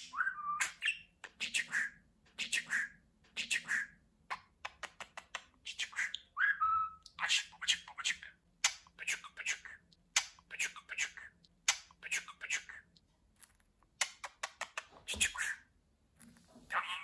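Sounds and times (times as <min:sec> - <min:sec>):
budgerigar rasps and clicks: 0:07.1 - 0:13.0.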